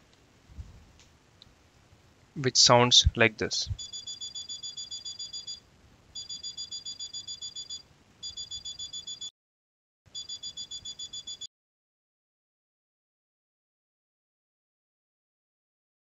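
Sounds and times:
buzzer beeping rapidly: 0:03.8 - 0:05.6, 0:06.2 - 0:09.3, 0:10.1 - 0:11.5.

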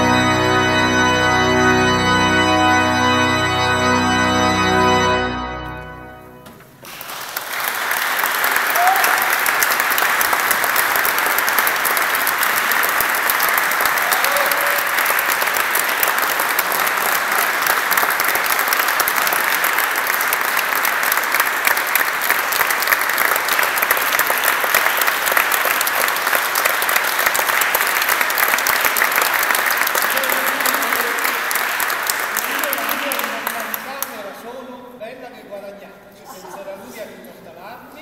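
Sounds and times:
audience applauding: 0:06.8 - 0:34.4.

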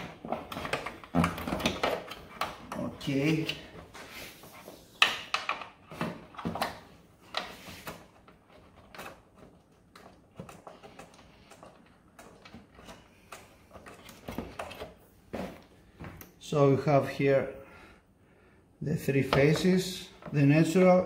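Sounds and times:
cable handling clicks and knocks: 0:00.0 - 0:16.4.

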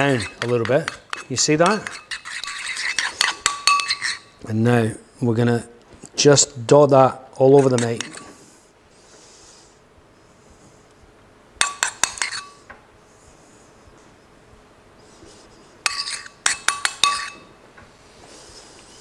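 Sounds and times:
metal spoon clinking on ceramic bowl: 0:00.0 - 0:04.2, 0:11.6 - 0:12.6, 0:15.9 - 0:17.5.

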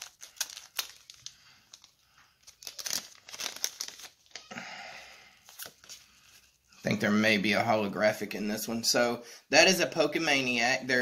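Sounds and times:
foil pack crinkling: 0:00.0 - 0:04.5.

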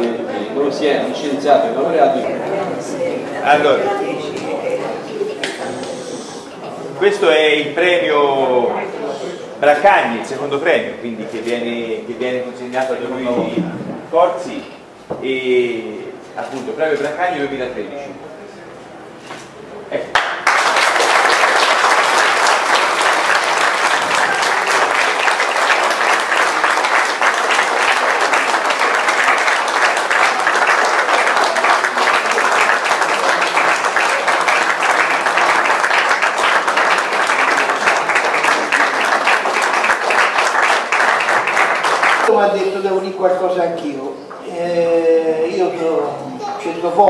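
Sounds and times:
audience applauding: 0:20.1 - 0:42.3.

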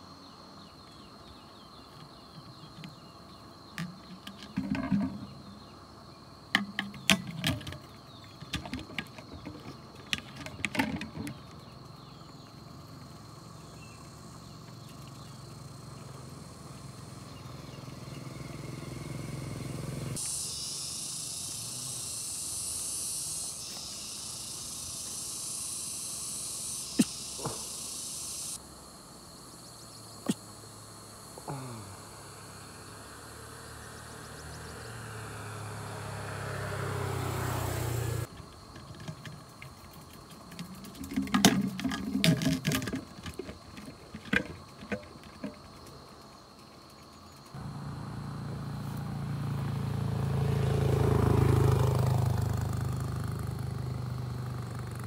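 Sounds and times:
cicadas droning: 0:00.0 - 0:55.0
faint steady insect tone: 0:00.0 - 0:55.0
handling clicks and knocks: 0:03.7 - 0:05.4, 0:06.5 - 0:11.6, 0:38.3 - 0:46.0.

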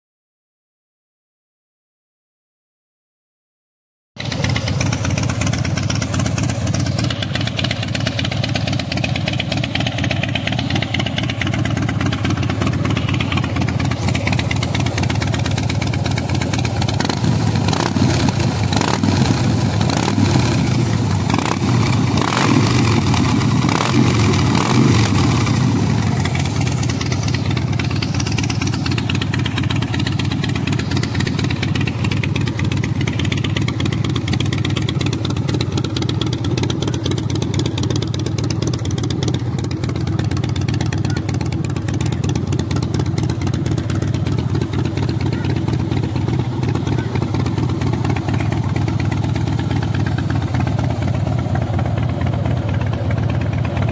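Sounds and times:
motorcycle engine idling: 0:04.2 - 0:53.9.

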